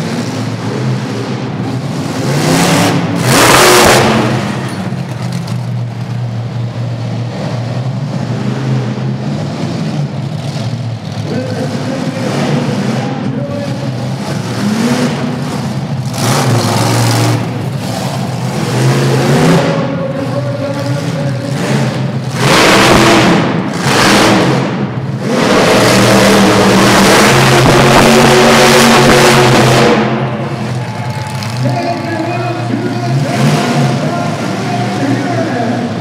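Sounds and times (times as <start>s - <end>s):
truck engine revving: 0.0s - 36.0s.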